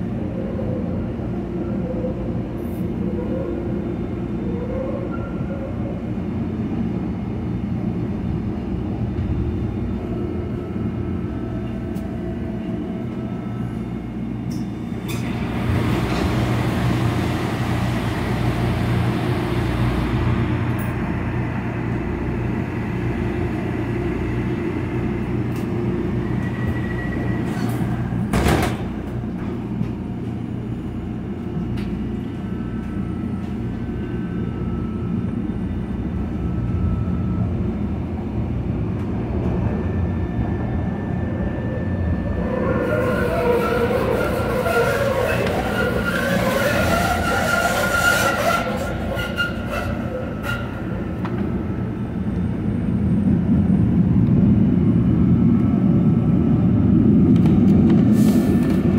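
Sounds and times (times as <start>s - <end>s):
trolley motors and wheels rumbling: 0.0s - 58.9s.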